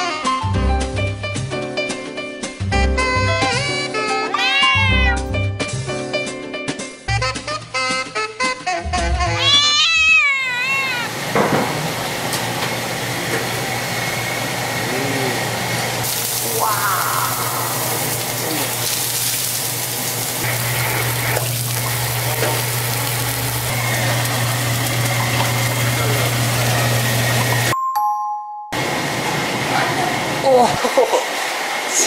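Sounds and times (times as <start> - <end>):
gas burners hissing: 10.5 - 27.8
extraction fan motor hum: 11.0 - 27.8.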